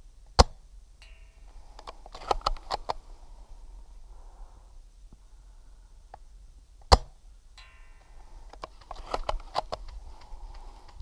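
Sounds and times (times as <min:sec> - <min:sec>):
short ringing ping: 0:01.0 - 0:02.2, 0:07.6 - 0:08.8
rifle bolt clicks and clacks: 0:01.8 - 0:03.0, 0:08.5 - 0:11.0.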